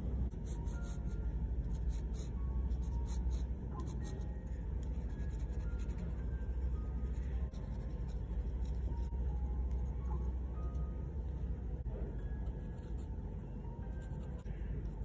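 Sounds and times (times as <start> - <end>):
steady low rumble: 0.0 - 15.0
pen nib scratching on paper: 0.3 - 9.1, 12.4 - 13.2, 13.9 - 15.0.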